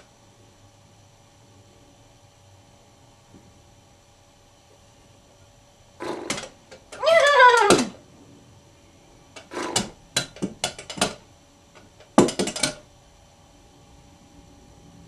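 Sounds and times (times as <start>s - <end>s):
horse-like whinny: 7.0s - 8.0s.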